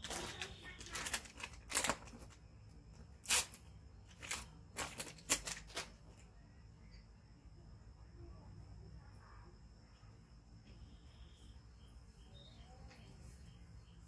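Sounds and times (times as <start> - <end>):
plastic package crinkling: 0.0 - 6.2.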